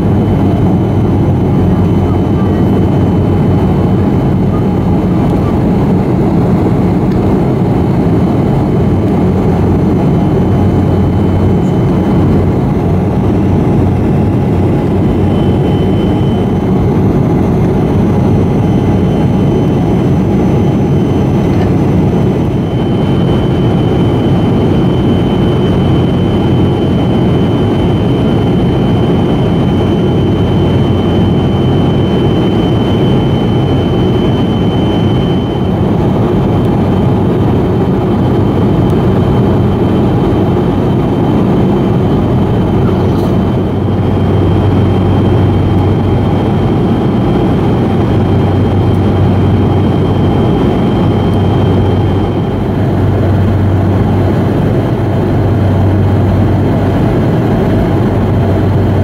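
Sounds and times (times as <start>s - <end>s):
thin high engine whine: 0.0s - 59.0s.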